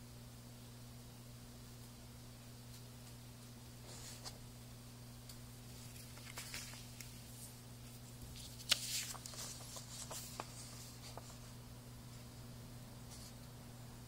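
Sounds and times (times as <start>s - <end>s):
faint steady hum: 0.0s - 14.0s
paper rustling and crinkling: 3.8s - 4.4s, 5.7s - 11.6s.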